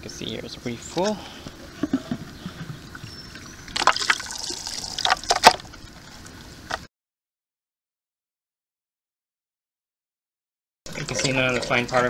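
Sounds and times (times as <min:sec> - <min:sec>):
water and leaves spilling: 0:03.7 - 0:05.5.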